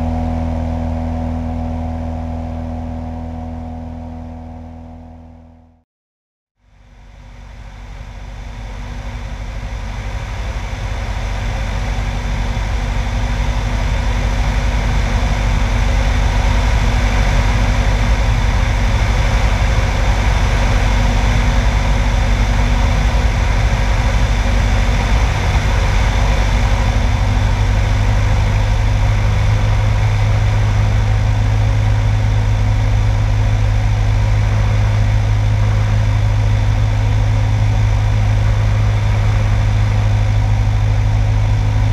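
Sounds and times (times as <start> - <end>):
low hum: 0.0 - 5.8, 6.6 - 41.9
propeller airplane engine: 0.0 - 5.8, 6.6 - 41.9.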